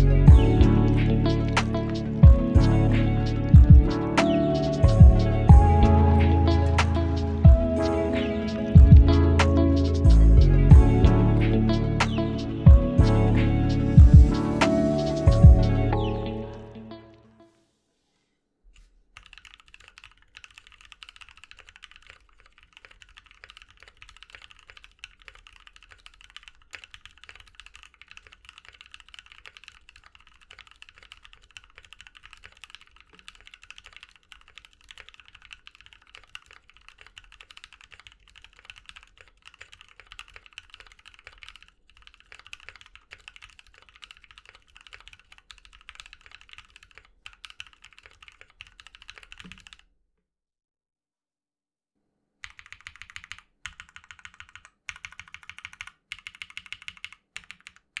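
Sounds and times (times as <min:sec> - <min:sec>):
mechanical keyboard typing: 0:19.2 - 0:49.9, 0:52.4 - 0:58.0.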